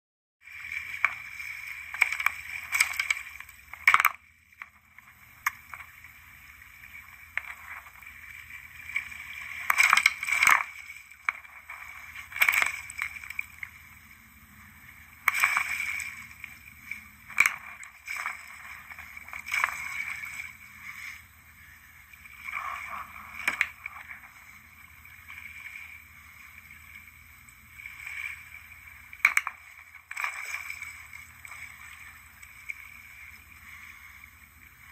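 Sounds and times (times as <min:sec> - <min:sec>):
water splashing and sloshing: 0:00.4 - 0:34.9.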